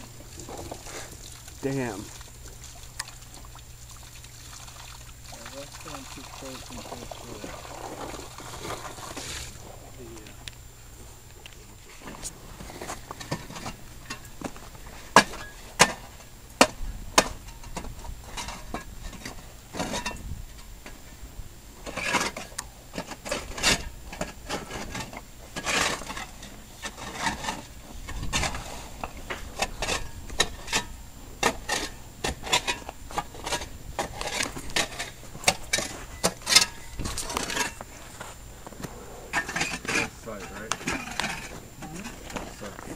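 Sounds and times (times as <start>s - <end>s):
tools scraping ice: 21.8s - 38.3s, 39.3s - 42.9s.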